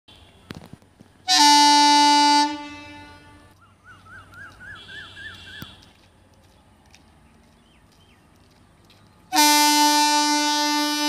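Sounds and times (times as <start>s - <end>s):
locomotive horn blast: 1.3s - 3.5s, 9.3s - 11.0s.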